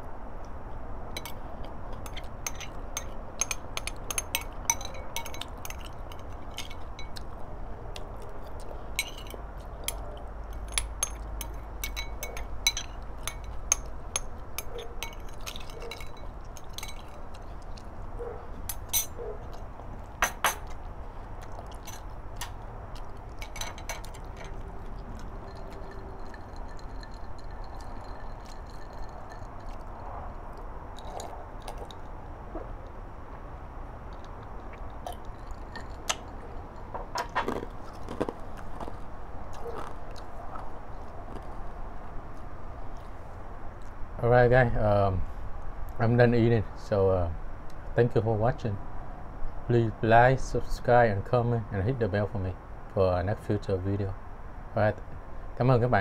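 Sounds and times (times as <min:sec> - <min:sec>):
spoon clinking against glass bowl: 0:02.0 - 0:07.2, 0:09.0 - 0:17.4, 0:18.7 - 0:19.2, 0:20.2 - 0:20.7, 0:23.4 - 0:24.6, 0:25.2 - 0:29.9.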